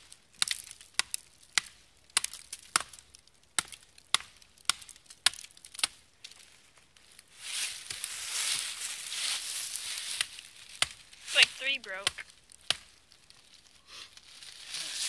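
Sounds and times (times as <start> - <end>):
axe chopping wood: 0.4 - 6.0, 10.1 - 13.0
rustling in dry leaves: 5.5 - 15.0.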